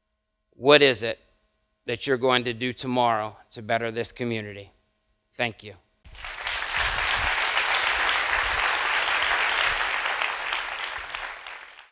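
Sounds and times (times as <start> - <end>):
audience applauding: 6.1 - 11.9.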